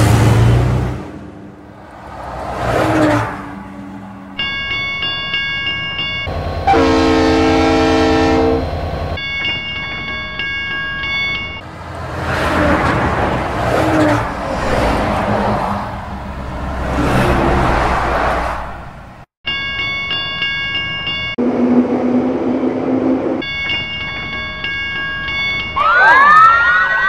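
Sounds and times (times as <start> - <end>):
level-crossing warning bell: 4.4 - 11.6, 19.5 - 21.5, 23.4 - 26.2
train horn blast: 6.6 - 8.7.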